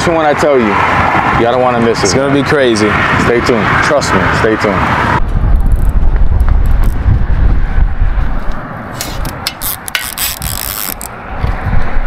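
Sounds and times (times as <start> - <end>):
wind buffeting microphone: 0.0 - 12.0
fishing reel clicking: 9.2 - 11.1.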